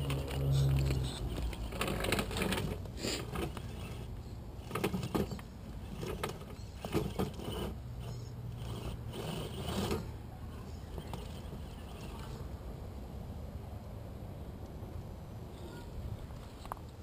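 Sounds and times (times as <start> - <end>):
toy motor and gearbox whirring: 0.0 - 12.4.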